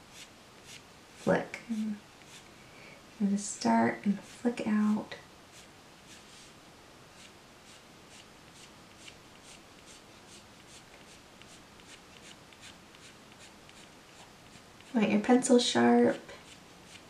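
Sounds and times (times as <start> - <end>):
pencil scratching on paper: 0.1 - 1.4, 2.2 - 2.5, 4.2 - 4.5, 5.5 - 6.6, 7.2 - 15.0, 16.4 - 17.0.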